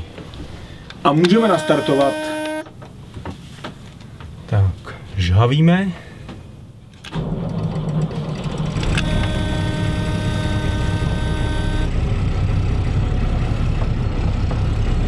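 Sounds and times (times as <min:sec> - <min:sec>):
thin high steady tone: 0:01.3 - 0:02.7, 0:09.0 - 0:11.9
diesel engine starting and idling: 0:07.1 - 0:15.0.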